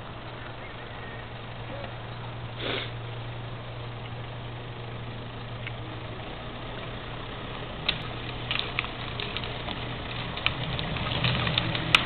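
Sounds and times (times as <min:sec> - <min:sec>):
truck engine idling: 0:00.0 - 0:12.0
short hiss: 0:02.6 - 0:03.0.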